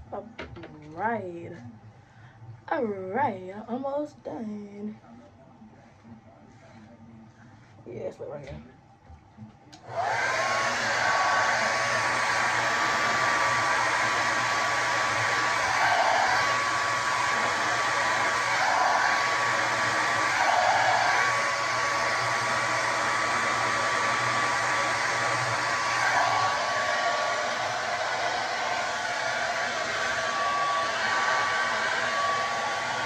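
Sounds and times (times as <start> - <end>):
hair dryer motor whine: 9.8 - 33.0.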